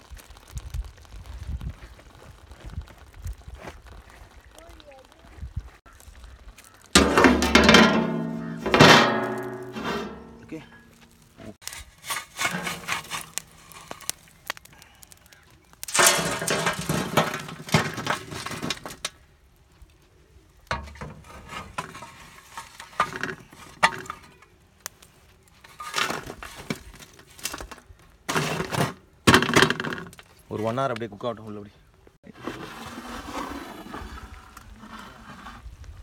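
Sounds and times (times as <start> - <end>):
shovel scraping embers: 6.6 - 19.2, 20.7 - 30.9, 32.2 - 35.8
embers clattering on metal lid: 6.9 - 14.6, 15.8 - 19.1, 20.7 - 24.4, 25.6 - 30.2.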